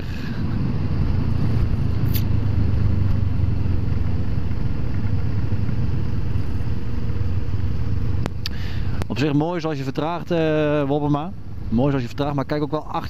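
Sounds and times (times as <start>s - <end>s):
motorcycle engine rumbling: 0.0s - 9.1s
wind and road noise: 0.0s - 13.0s.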